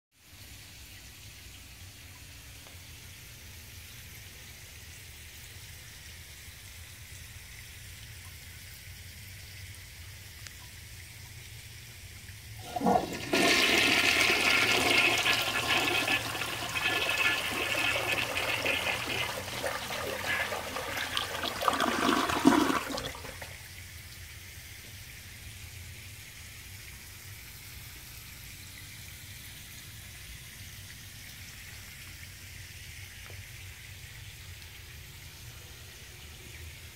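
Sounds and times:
toilet flushing: 12.6s - 23.6s.

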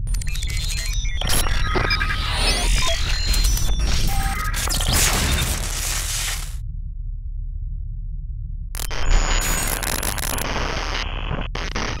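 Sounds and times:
heavy low rumble: 5.5s - 9.8s
static-like noise: 8.8s - 12.0s.

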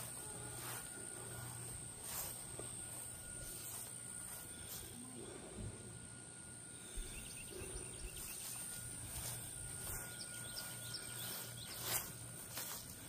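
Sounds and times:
outdoor ambience: 0.0s - 13.0s.

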